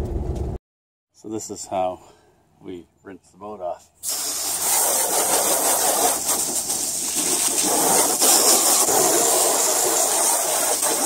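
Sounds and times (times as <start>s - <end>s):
hose spraying water onto boat: 4.0s - 11.0s.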